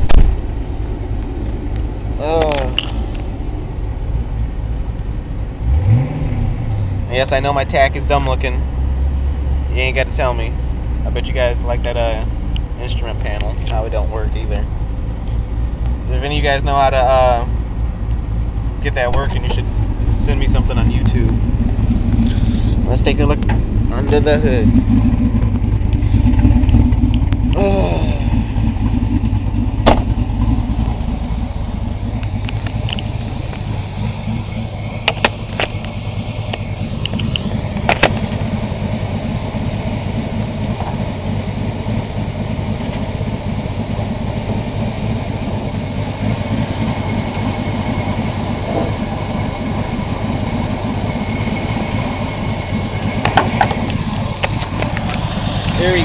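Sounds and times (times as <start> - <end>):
car engine idling: 0.0 - 56.0
sharp knocks: 29.8 - 30.2.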